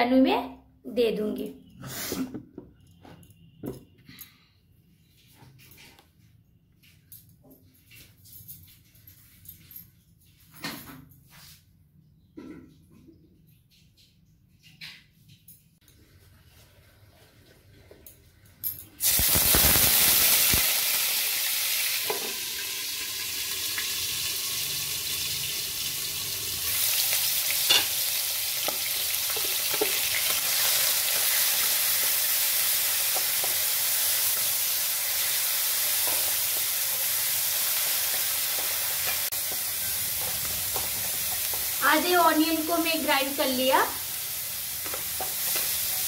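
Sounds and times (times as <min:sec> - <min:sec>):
paste sizzling in hot oil: 0:19.0 - 0:46.0.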